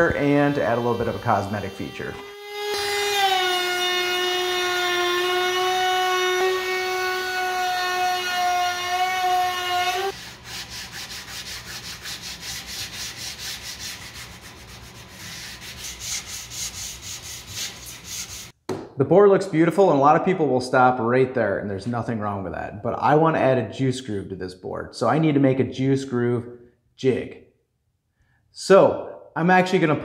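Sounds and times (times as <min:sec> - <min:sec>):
router high whine: 0:00.0 - 0:07.3
sanding block scraping wood: 0:08.0 - 0:18.6.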